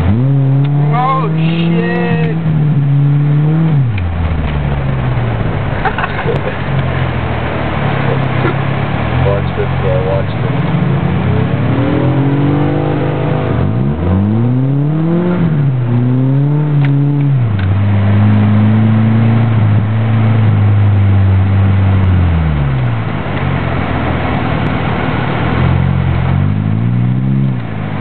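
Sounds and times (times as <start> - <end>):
car engine revving: 0.0 - 28.0
road and tyre noise: 0.0 - 28.0.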